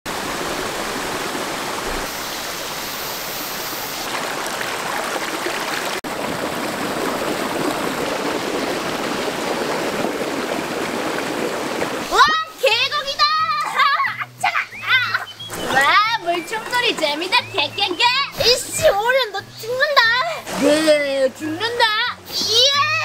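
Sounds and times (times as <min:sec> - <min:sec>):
stream rushing over rocks: 0:00.1 - 0:12.6.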